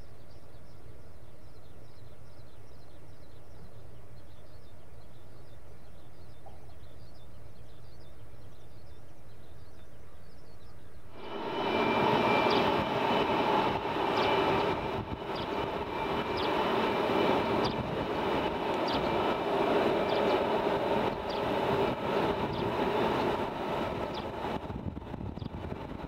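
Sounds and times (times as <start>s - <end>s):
jet engines idling: 11.1s - 26.0s.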